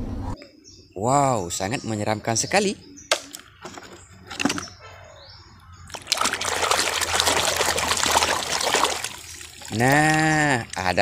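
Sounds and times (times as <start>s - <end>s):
hand splashing in muddy water: 5.9s - 11.0s.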